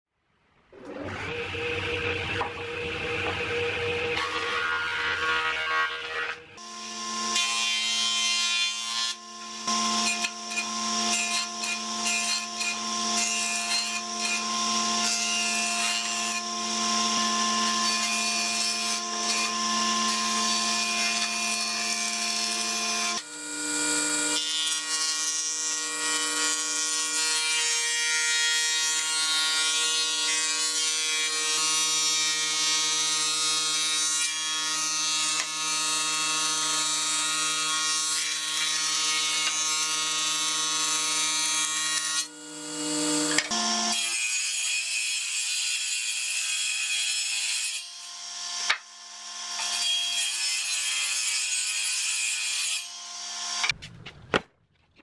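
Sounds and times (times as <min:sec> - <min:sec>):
thickness planer running: 0:00.8 - 0:25.0
jointer-planer humming and cutting: 0:00.8 - 0:44.3.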